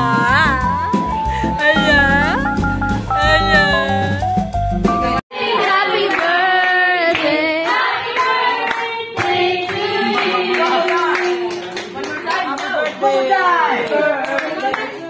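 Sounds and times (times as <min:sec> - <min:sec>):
person singing gliding melody: 0:00.0 - 0:04.3.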